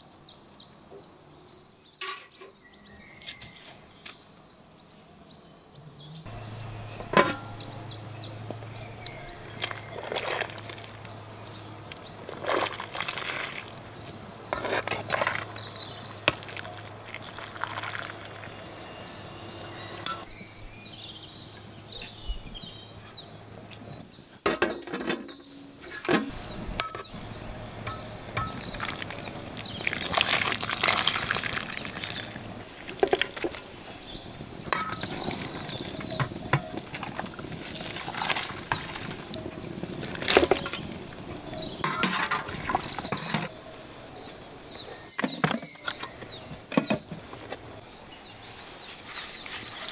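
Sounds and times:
metal cookware clattering: 7.0s - 7.6s, 34.7s - 35.2s, 41.8s - 43.5s
metal ladle in a pot: 7.1s - 7.6s, 27.8s - 29.1s, 41.8s - 43.5s.

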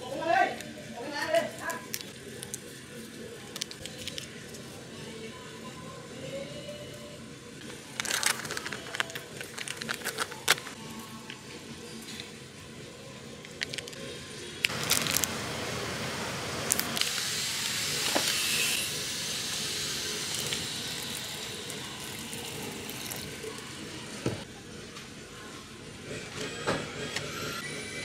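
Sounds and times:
hot pot hissing: 14.7s - 24.5s.

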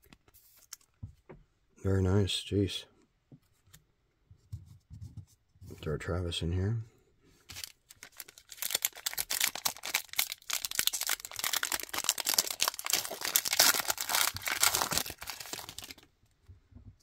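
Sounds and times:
foil wrapper crinkling and tearing: 7.5s - 16.1s.

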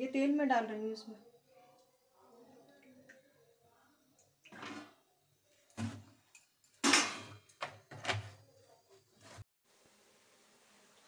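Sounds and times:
kitchen items knocking and clattering: 4.5s - 5.1s, 5.7s - 9.4s.

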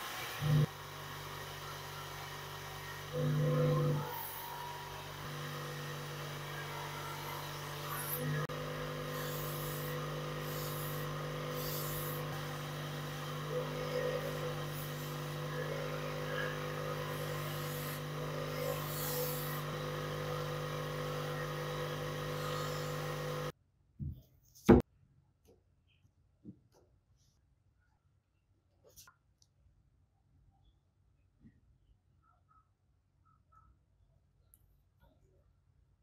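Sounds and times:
buffing wheel humming: 0.0s - 23.5s.

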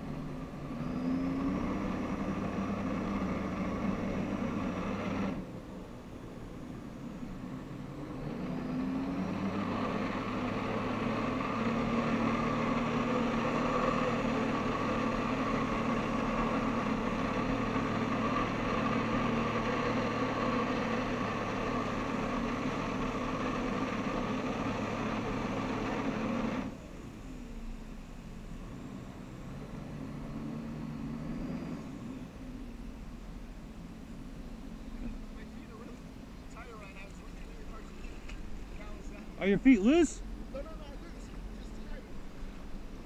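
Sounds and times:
watercraft engine revving: 0.0s - 5.6s, 7.9s - 27.0s.

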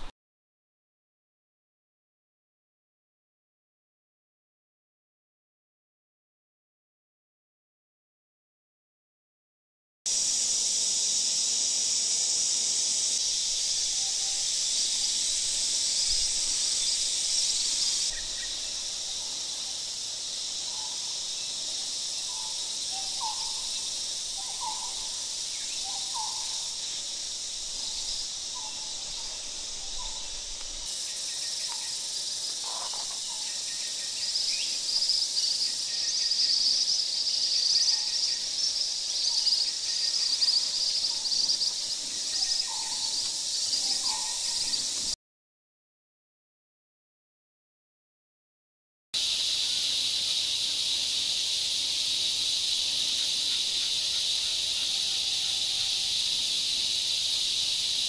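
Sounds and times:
high insect buzzing: 10.1s - 36.6s.

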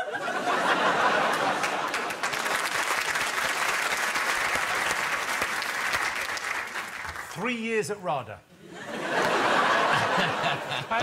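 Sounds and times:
audience applauding: 0.6s - 7.4s.

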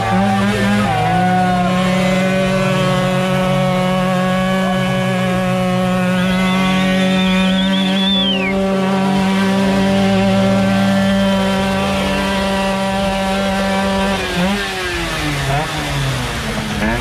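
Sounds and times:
moped engine revving: 0.0s - 17.0s.

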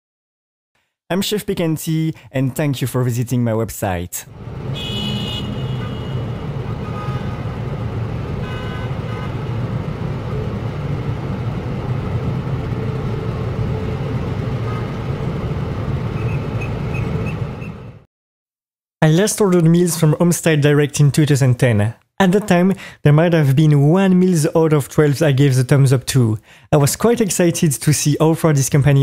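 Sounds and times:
traffic rumble: 4.3s - 18.1s
car horn toots: 4.7s - 7.5s, 8.4s - 9.4s.

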